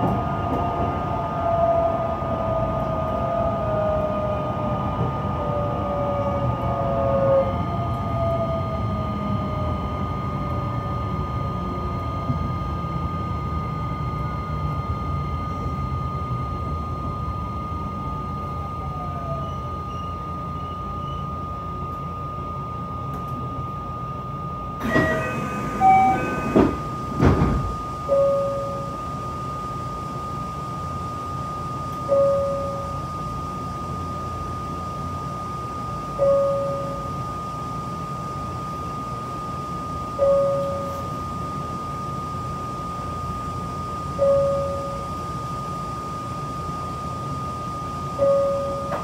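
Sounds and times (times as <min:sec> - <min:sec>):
electronic chime: 0:24.8 - 0:27.1, 0:28.0 - 0:29.0, 0:32.1 - 0:33.0, 0:36.2 - 0:37.2, 0:40.2 - 0:41.1, 0:44.2 - 0:45.1, 0:48.2 - 0:49.0
high electrical tone: 0:24.8 - 0:49.0.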